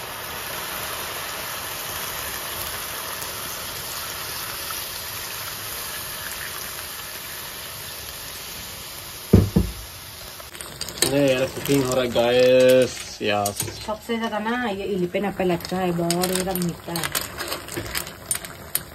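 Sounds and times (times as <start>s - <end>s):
curry sizzling: 0.0s - 18.9s
loud knocks: 9.4s - 9.9s
water pouring: 9.4s - 14.0s, 15.2s - 18.9s.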